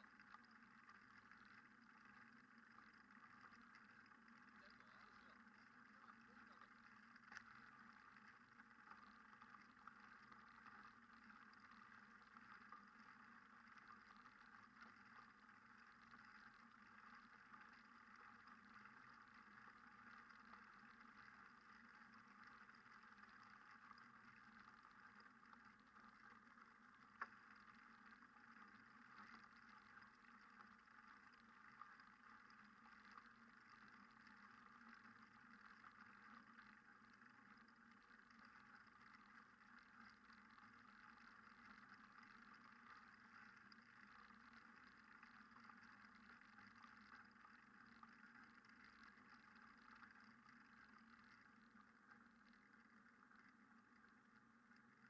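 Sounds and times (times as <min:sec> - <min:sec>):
faint steady hiss: 0:00.0 - 0:55.0
faint click: 0:02.8 - 0:12.9, 0:27.0 - 0:27.8.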